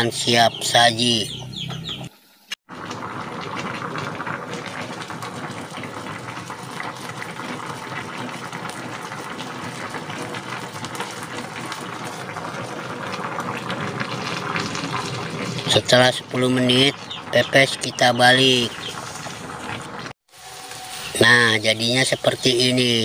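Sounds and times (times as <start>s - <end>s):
water boiling in a pan: 2.6s - 23.0s.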